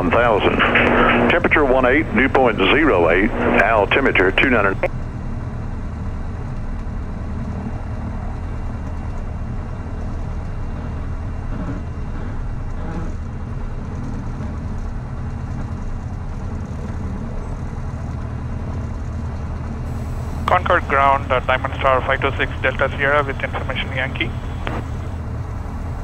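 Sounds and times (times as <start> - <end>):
aircraft engine and propeller running: 0.0 - 26.0.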